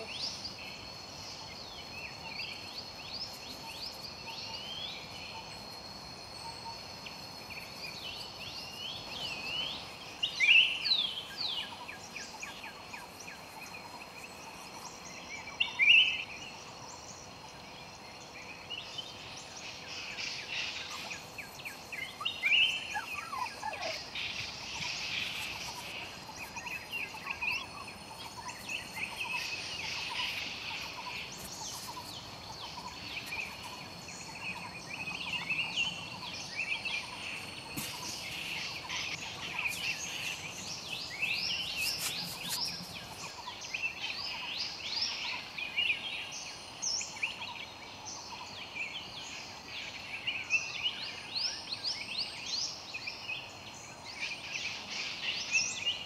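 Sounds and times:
birds chirping and calling: 0:18.9 - 0:46.1.

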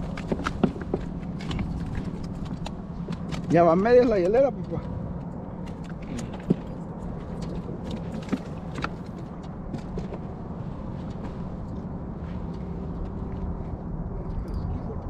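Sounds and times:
fishing tackle clicks and knocks: 0:00.0 - 0:10.3
steady low hum: 0:00.0 - 0:15.0.

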